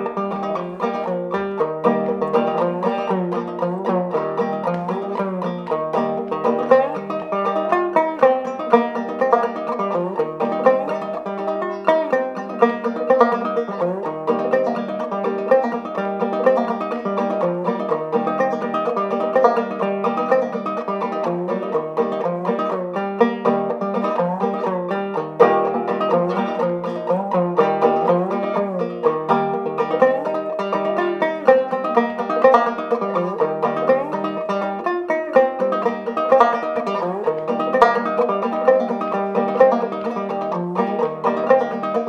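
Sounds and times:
banjo plucked tune with drone: 0.0 - 42.0.

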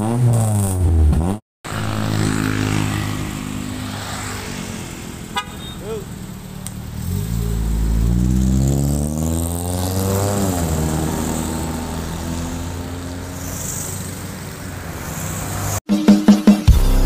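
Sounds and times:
car accelerating away: 6.0 - 15.8.

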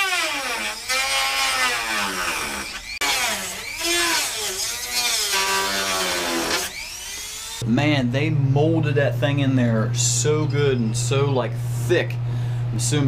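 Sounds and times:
rotary tool cutting metal: 0.0 - 7.6.

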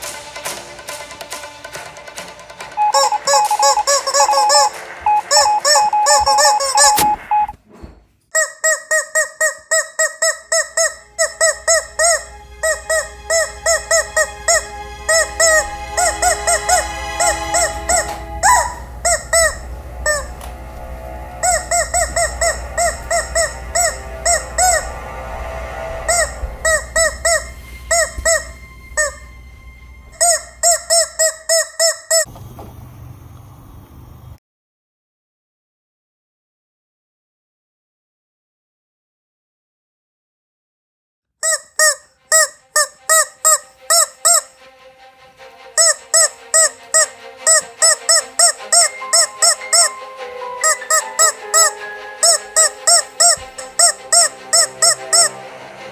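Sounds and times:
rubber chicken toy squeaking: 2.8 - 7.6, 8.3 - 20.3, 21.4 - 24.8, 26.1 - 29.3, 30.2 - 32.3, 41.4 - 44.5, 45.8 - 50.0, 50.6 - 55.3
faint low hum: 11.2 - 30.9.

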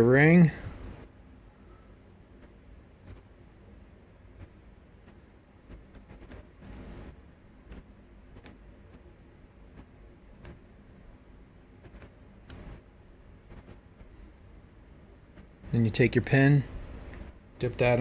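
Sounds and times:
piston ring clicking: 4.3 - 14.2.

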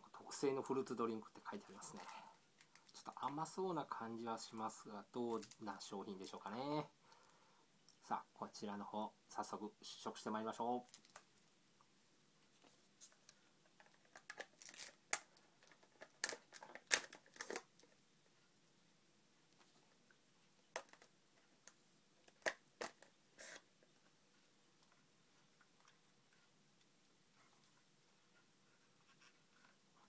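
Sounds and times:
plastic straw wrapper crinkling: 1.6 - 3.6, 5.3 - 6.5, 10.8 - 11.3, 13.0 - 18.0.

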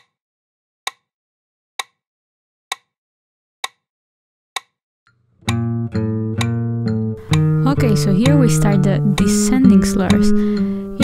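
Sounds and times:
classical guitar playing: 5.4 - 11.0
metronome clicking: 5.4 - 11.0.

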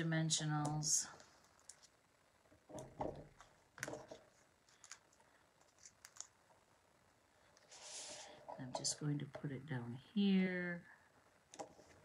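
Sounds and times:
paper sheet crackling: 3.4 - 6.4.

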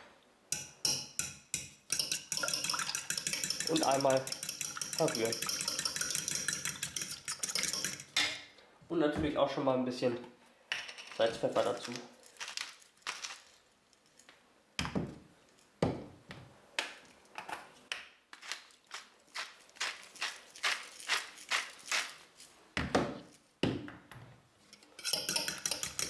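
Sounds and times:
pepper grinder twists: 18.4 - 22.2.

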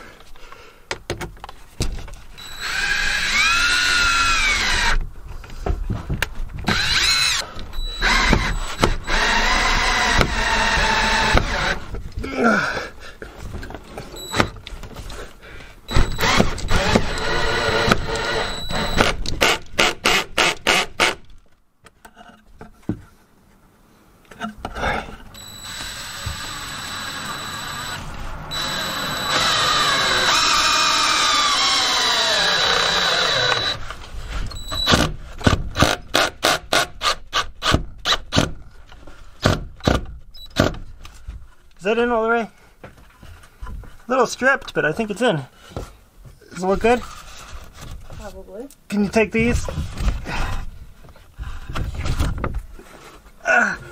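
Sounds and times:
cordless drill driving screw: 2.4 - 5.0, 6.7 - 11.9, 14.2 - 14.5, 15.9 - 21.2, 25.4 - 35.1.

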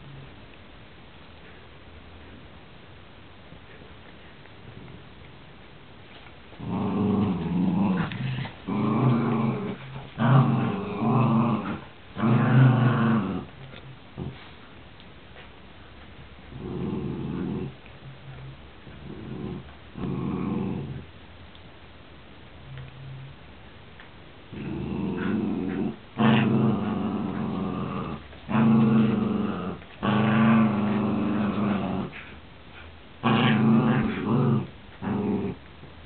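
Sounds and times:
dogs play-growling: 6.1 - 14.6, 16.5 - 18.0, 18.8 - 21.1, 24.5 - 36.0.

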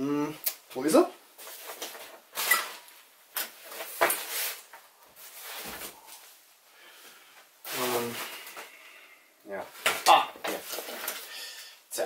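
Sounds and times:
objects rustling and knocking: 1.3 - 6.5, 9.6 - 11.4.

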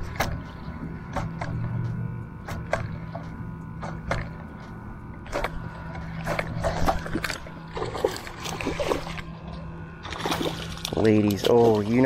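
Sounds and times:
steady low hum: 0.0 - 12.0
water splashing against boat: 0.0 - 12.0.

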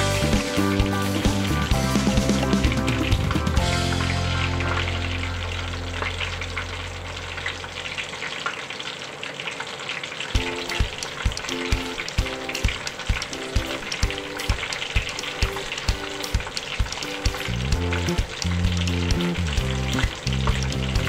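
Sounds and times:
music beat of thumps: 0.0 - 4.9, 10.4 - 21.0
fish sizzling in hot oil: 0.0 - 21.0.

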